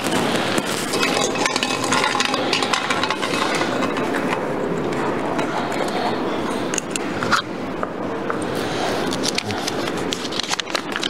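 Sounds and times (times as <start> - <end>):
crowd talking: 0.1 - 10.3.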